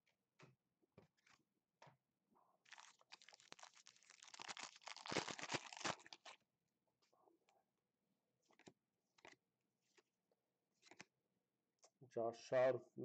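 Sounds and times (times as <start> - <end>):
foil wrapper tearing and crinkling: 2.7 - 6.4.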